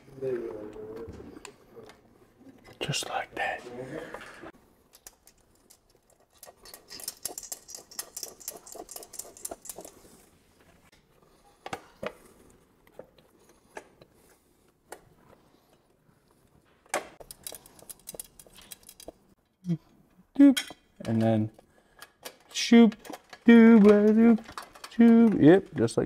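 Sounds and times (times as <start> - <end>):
metal hardware clicking and rattling: 17.2 - 19.2, 21.0 - 26.0.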